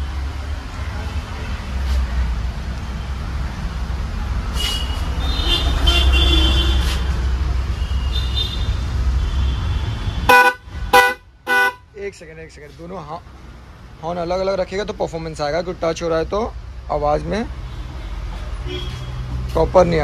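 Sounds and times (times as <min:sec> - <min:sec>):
twin-tone horn blasts: 0:09.5 - 0:11.8.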